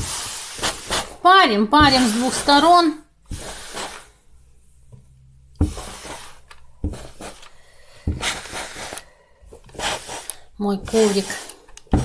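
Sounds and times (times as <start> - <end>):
steam iron hissing: 0.0 - 1.2, 3.3 - 4.1, 5.6 - 6.4, 7.0 - 9.1, 9.7 - 12.0.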